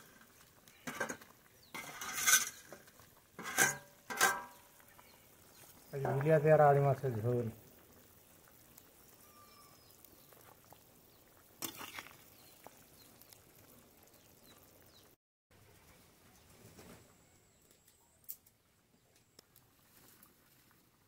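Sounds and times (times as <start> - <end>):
faint bird chirps: 8.7 - 10.5.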